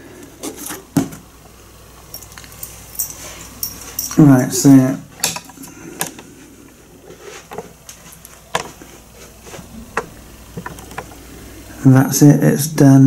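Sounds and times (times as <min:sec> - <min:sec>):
faint rustling: 0:02.3 - 0:04.7, 0:05.5 - 0:11.6.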